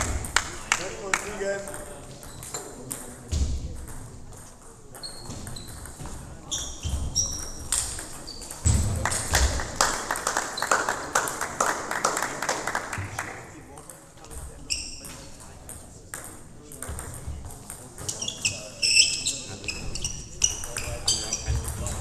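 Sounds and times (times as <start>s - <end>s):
shoe squeaks: 5.0s - 8.6s, 14.6s - 15.3s, 18.0s - 22.0s.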